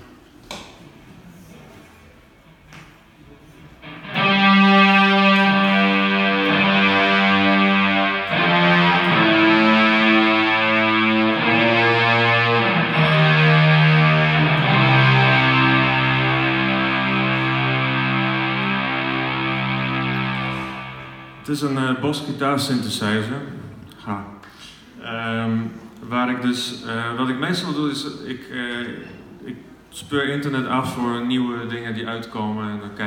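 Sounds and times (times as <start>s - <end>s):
synthesized electric guitar notes: 3.8s - 22.0s.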